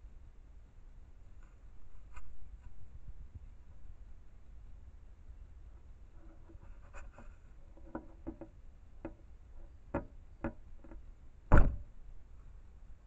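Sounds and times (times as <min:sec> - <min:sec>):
loud knock on case: 0:11.5 - 0:11.8.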